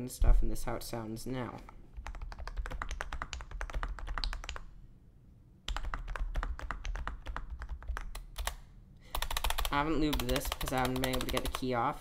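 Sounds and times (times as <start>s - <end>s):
fast typing on keyboard: 2.0s - 4.7s, 5.7s - 11.7s.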